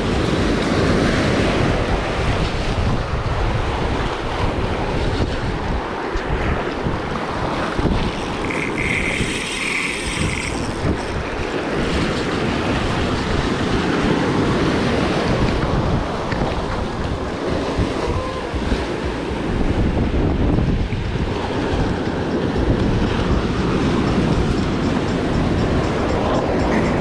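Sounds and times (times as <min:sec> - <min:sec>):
surf washing over shallows: 0:00.0 - 0:27.0
wind buffeting microphone: 0:00.0 - 0:27.0
fishing reel buzzing: 0:08.0 - 0:11.2.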